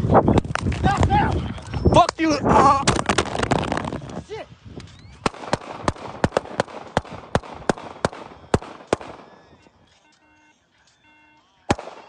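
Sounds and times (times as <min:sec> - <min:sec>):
rapid gunshots: 0:05.2 - 0:09.6, 0:11.7 - 0:12.0.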